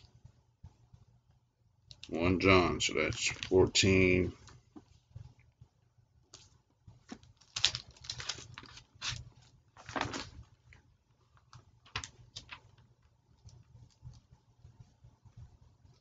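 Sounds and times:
pages rustling: 6.4s - 10.8s, 11.4s - 12.8s.

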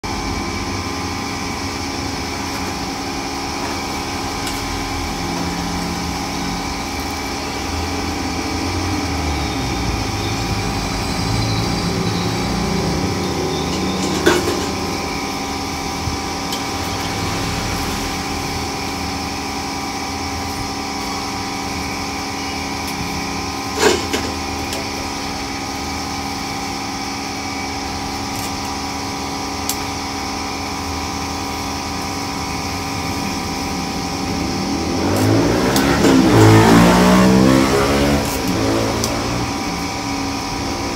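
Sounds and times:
mechanical hum with held tones: 0.0s - 40.9s
meat deep-frying in bubbling oil: 0.1s - 40.9s
sharp metal clanks: 13.5s - 15.2s.

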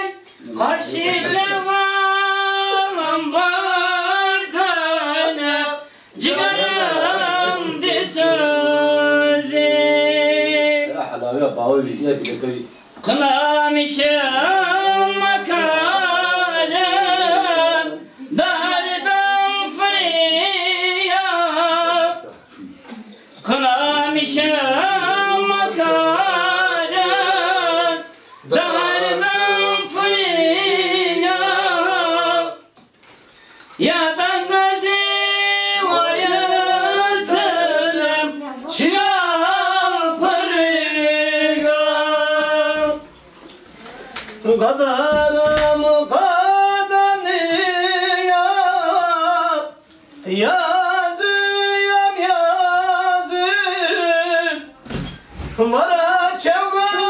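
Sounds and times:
person singing unaccompanied: 0.0s - 11.1s, 13.0s - 22.4s, 23.0s - 32.8s, 33.8s - 57.0s.

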